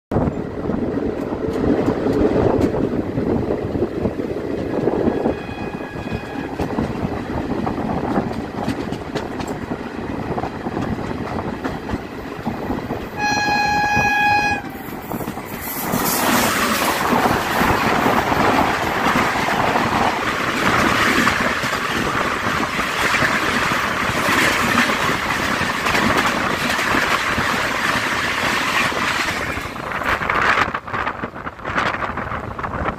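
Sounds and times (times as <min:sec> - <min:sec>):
train running noise: 0:00.1 - 0:32.9
wheels rattling over rails: 0:00.2 - 0:32.9
locomotive horn blast: 0:05.0 - 0:06.7, 0:13.2 - 0:14.8.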